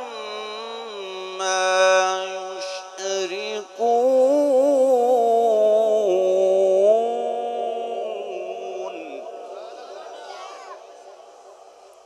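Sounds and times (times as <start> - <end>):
man reciting melodically: 0.0 - 12.0.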